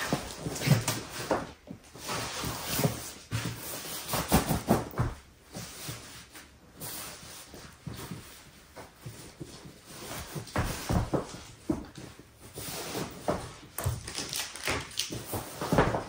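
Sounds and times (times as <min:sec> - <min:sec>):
paper rustling and crinkling: 0:09.4 - 0:16.0.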